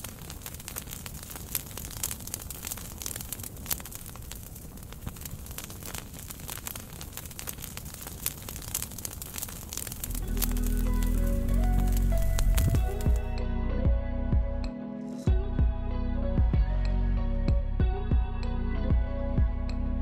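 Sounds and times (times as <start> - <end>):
low rush of flame: 0.0 - 13.3
campfire crackling and popping: 0.0 - 13.4.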